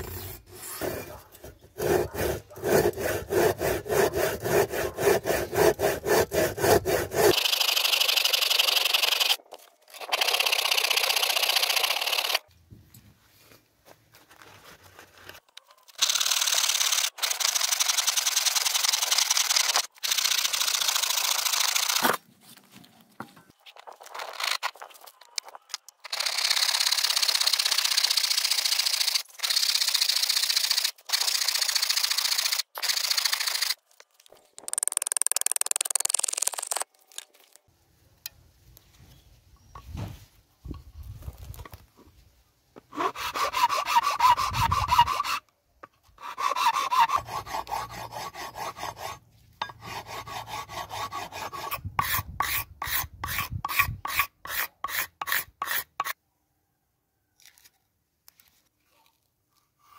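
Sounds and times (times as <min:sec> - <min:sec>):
hand saw cutting wood: 0:00.0 - 0:12.4, 0:42.9 - 0:45.5, 0:46.2 - 0:56.2.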